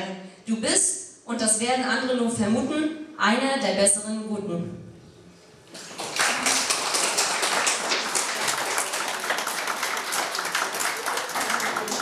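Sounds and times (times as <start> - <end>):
crowd applause: 5.8 - 12.0.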